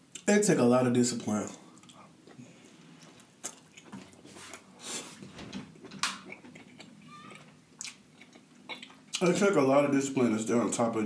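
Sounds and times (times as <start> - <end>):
person chewing wetly: 1.7 - 4.7, 6.0 - 9.3.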